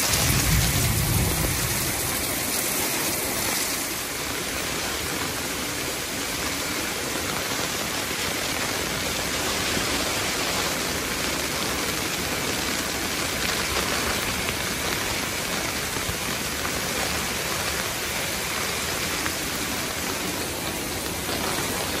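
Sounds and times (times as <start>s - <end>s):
heavy rain falling: 0.0s - 22.0s.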